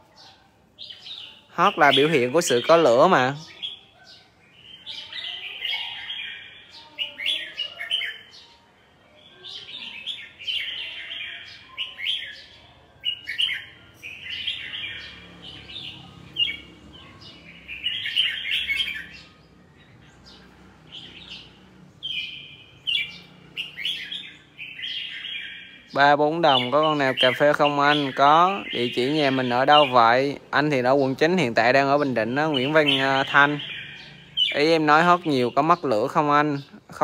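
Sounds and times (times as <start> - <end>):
bulbul warbling song: 0.8 - 8.6, 9.3 - 37.0.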